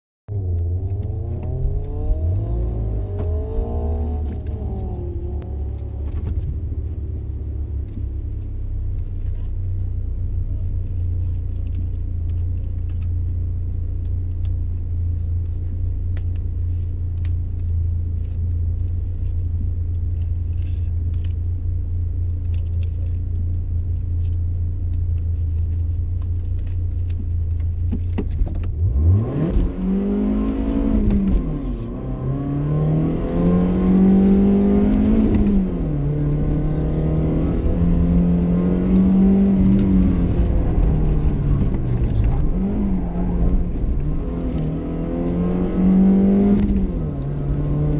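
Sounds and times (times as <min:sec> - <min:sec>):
car accelerating hard: 0:00.4 - 0:08.0, 0:28.6 - 0:47.9
car engine idling: 0:04.0 - 0:29.2, 0:29.8 - 0:47.9.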